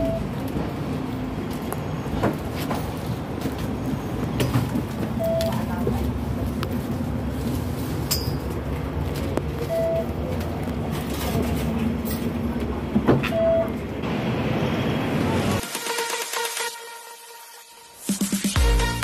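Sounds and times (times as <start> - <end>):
short beeps: 0.0 - 0.3
tram rumble: 0.0 - 15.6.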